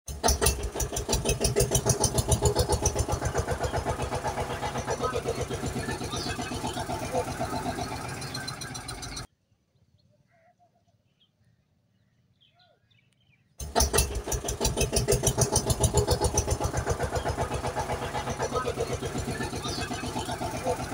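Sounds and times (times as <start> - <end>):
tractor engine chugging: 0.1 - 9.3, 13.6 - 20.9.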